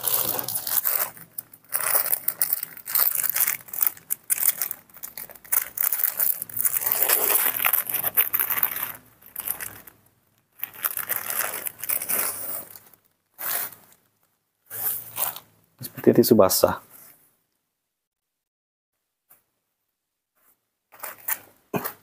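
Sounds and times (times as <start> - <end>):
plastic packet crinkling: 0.0 - 14.4.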